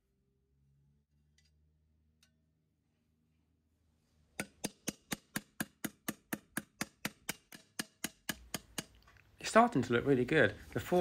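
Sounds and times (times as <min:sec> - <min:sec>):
hammer tapping steel pipe: 0:04.4 - 0:09.1.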